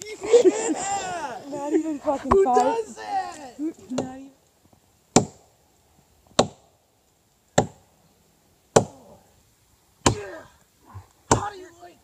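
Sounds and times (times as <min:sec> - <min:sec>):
hatchet chopping tree trunk: 0:05.1 - 0:05.4, 0:06.3 - 0:06.7, 0:07.5 - 0:07.8, 0:08.7 - 0:09.0, 0:10.0 - 0:10.3, 0:11.3 - 0:11.5.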